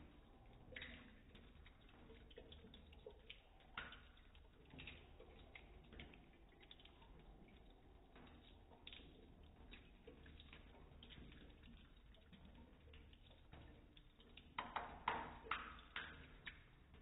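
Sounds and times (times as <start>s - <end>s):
water dripping and ticking: 0.0s - 17.0s.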